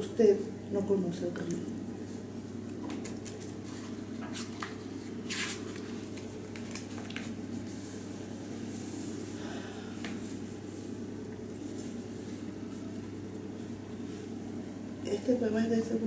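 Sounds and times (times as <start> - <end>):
low room hum: 0.0 - 16.0
book pages rustling: 2.9 - 8.0.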